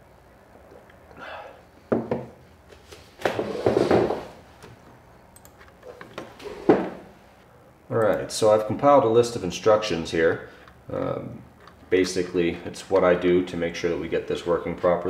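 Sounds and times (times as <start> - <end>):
person shifting in chair: 2.7 - 4.4.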